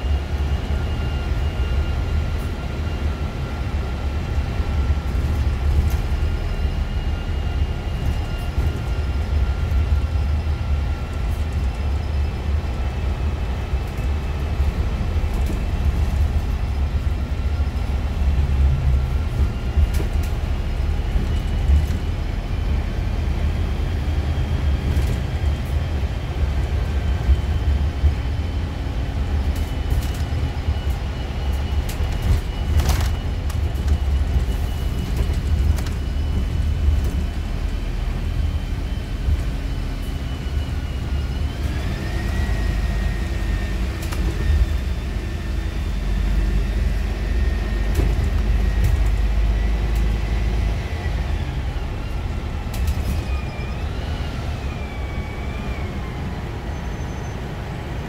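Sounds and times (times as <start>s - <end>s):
bus engine drone: 0.0s - 58.0s
road and tyre noise: 0.0s - 58.0s
interior rattles and clicks: 13.8s - 16.8s, 19.0s - 22.2s, 29.4s - 37.8s, 52.7s - 53.4s.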